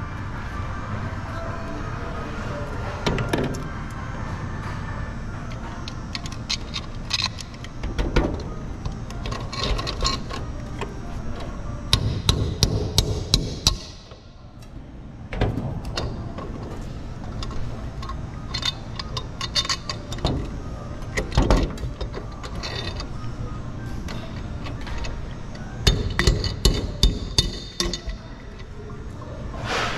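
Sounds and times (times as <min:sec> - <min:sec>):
hand tools striking hardware: 0:11.9 - 0:14.2, 0:25.8 - 0:28.2
metal clinks and knocks: 0:21.1 - 0:23.2, 0:25.8 - 0:28.7.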